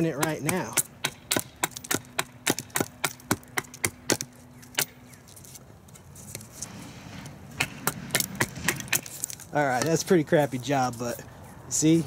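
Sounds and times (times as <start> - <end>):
blade striking wooden branch: 0.0 - 5.0, 7.5 - 10.0.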